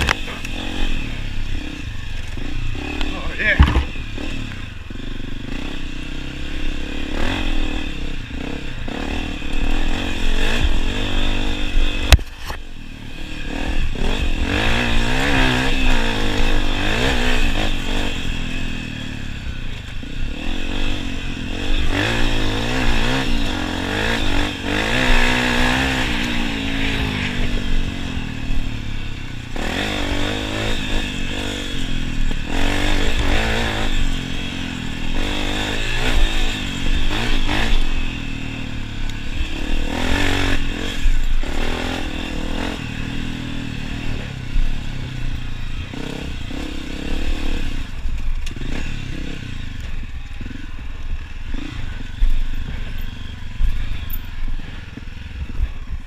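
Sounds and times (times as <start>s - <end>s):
dirt bike engine revving: 0.0s - 56.0s
sharp knock: 3.6s - 3.9s.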